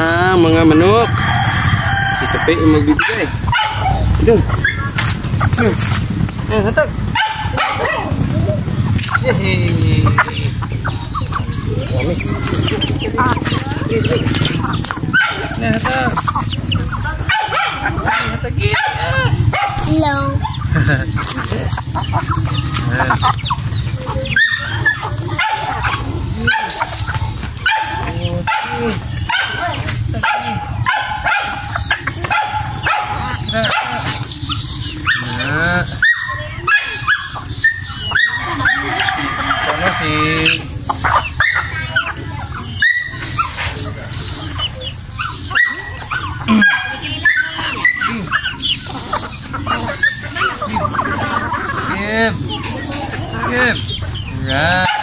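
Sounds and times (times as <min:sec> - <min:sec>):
steady low rumble: 0:00.0 - 0:30.9
chickens clucking and calling: 0:00.0 - 0:55.0.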